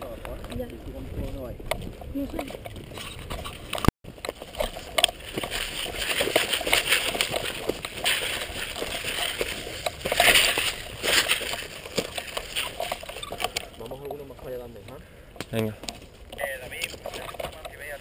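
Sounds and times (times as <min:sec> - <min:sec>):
footsteps crunching: 0:00.1 - 0:13.8
dry grass and brush rustling: 0:00.1 - 0:18.0.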